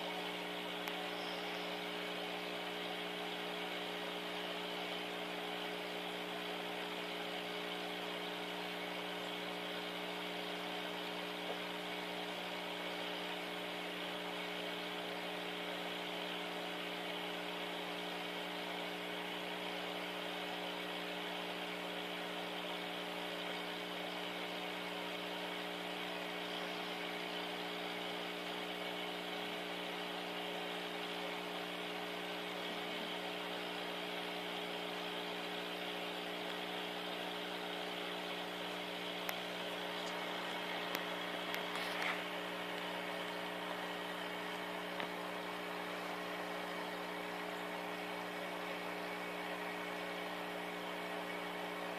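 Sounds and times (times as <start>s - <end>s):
small motor humming: 0.0s - 51.9s.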